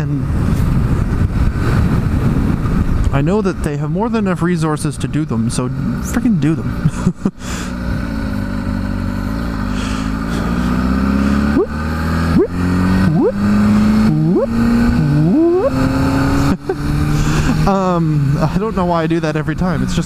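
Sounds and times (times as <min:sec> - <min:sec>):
motorcycle engine running: 0:05.3 - 0:20.0
motorcycle engine revving blips: 0:08.3 - 0:17.2.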